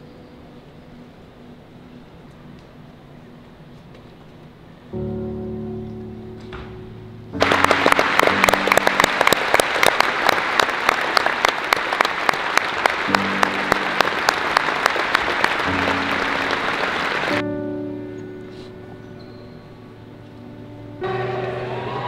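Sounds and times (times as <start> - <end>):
soft background music: 0.0 - 9.8, 13.0 - 22.0
crowd applauding: 7.4 - 17.4, 21.0 - 22.0.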